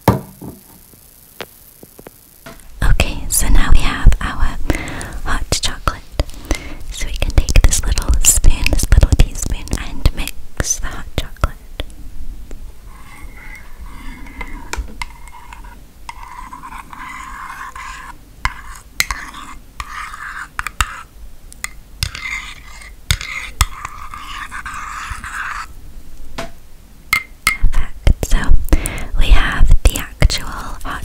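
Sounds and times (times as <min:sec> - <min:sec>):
loud knocks: 0:00.0 - 0:00.7
metal spoon stirring in a mug: 0:12.9 - 0:25.7.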